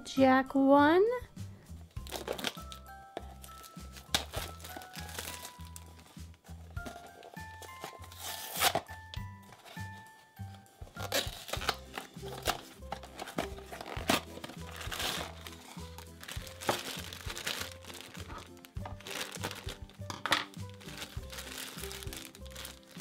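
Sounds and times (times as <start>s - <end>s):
packaging crinkling: 2.0s - 6.2s, 6.8s - 9.8s, 11.0s - 23.0s
cardboard box tearing: 7.6s - 8.9s, 11.0s - 19.8s.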